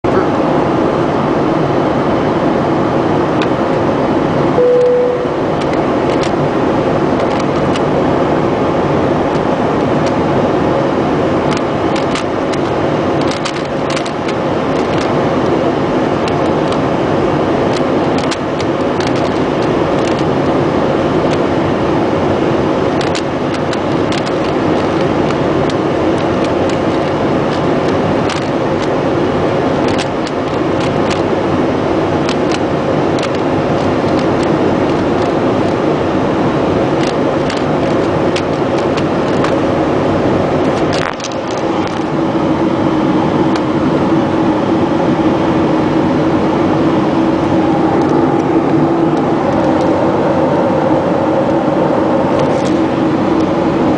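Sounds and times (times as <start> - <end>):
airliner cabin drone: 0.0 - 53.9
short steady tone: 4.6 - 5.6.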